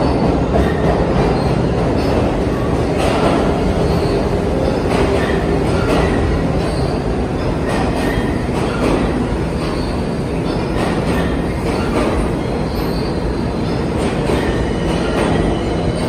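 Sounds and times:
wheels clacking over rail joints: 0.0s - 13.0s
subway train rumble: 0.0s - 16.0s
faint high wheel squeal: 3.8s - 8.9s, 9.6s - 16.0s.

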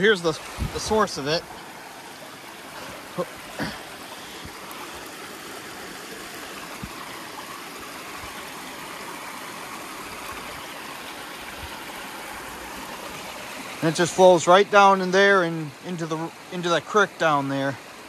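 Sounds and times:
water rushing over rocks: 0.0s - 18.0s.

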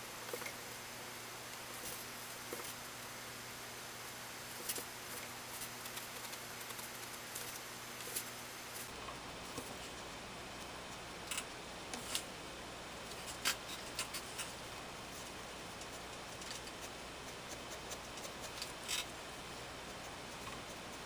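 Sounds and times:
steady hiss: 0.0s - 21.0s
pencil scratching on paper: 15.7s - 18.8s, 19.6s - 21.0s.

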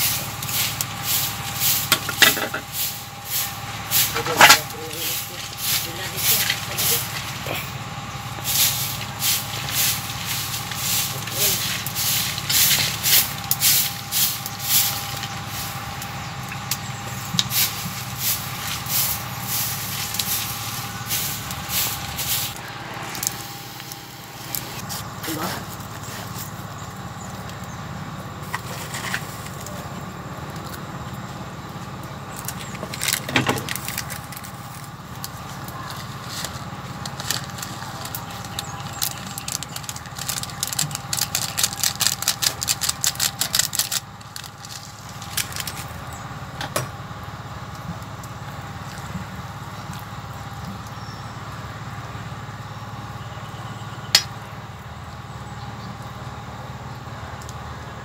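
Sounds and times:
steady low hum: 0.0s - 58.0s
seasoning shaken from plastic sachet: 35.8s - 45.7s.

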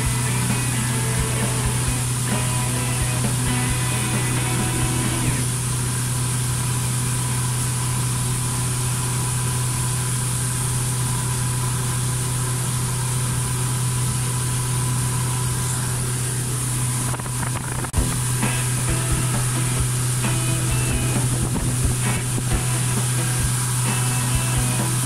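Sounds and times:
boat engine droning: 0.0s - 25.0s
wind: 0.0s - 25.0s
rushing water: 17.0s - 25.0s.

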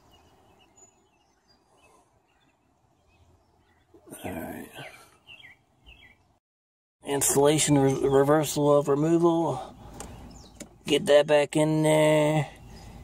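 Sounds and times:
bird chirps: 0.0s - 6.4s, 9.6s - 11.0s, 12.5s - 13.0s.

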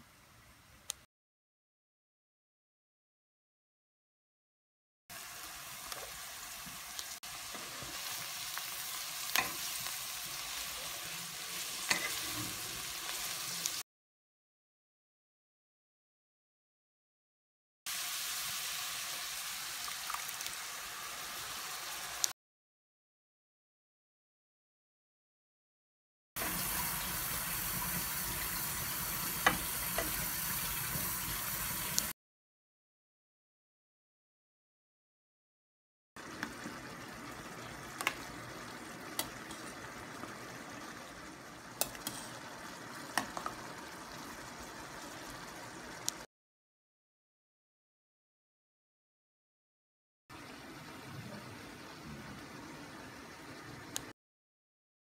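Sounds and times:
vegetables sizzling in oil: 5.1s - 13.8s, 17.9s - 22.3s, 26.4s - 32.2s, 36.2s - 46.3s.

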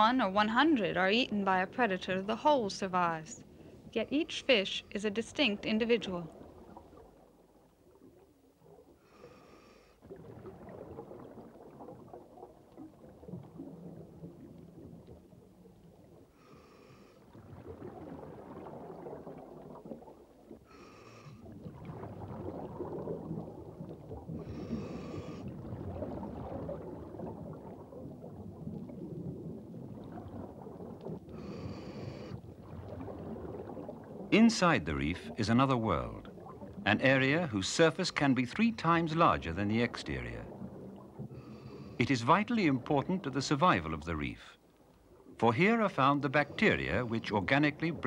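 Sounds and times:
exhaled bubbles burbling: 5.4s - 9.3s, 10.0s - 48.0s
hissing regulator inhales: 9.0s - 10.0s, 16.4s - 17.2s, 20.7s - 21.4s, 24.4s - 25.5s, 31.4s - 32.4s.

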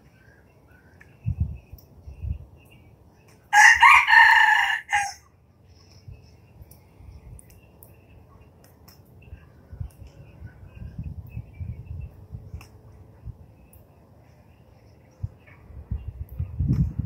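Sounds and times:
rooster crowing: 3.5s - 5.3s.

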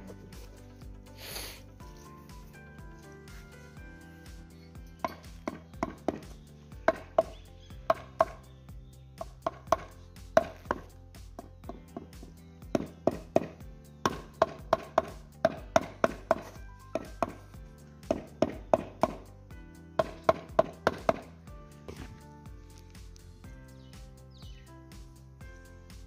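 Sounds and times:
rubber mallet tapping stone: 5.0s - 8.4s, 9.2s - 17.4s, 18.0s - 19.2s, 20.0s - 21.3s.

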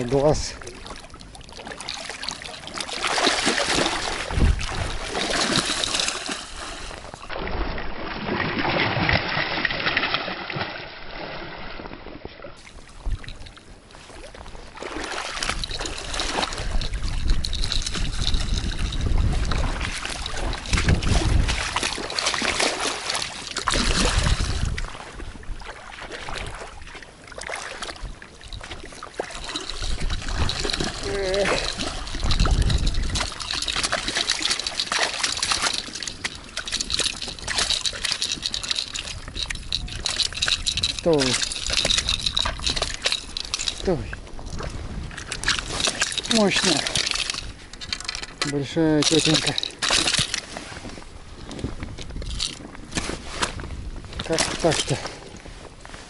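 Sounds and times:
water washing over stones: 0.0s - 11.0s, 14.8s - 24.9s, 28.5s - 44.1s, 45.3s - 47.5s, 48.4s - 50.4s
fish thrashing and splashing: 0.0s - 12.0s, 12.6s - 50.7s, 54.2s - 55.3s.

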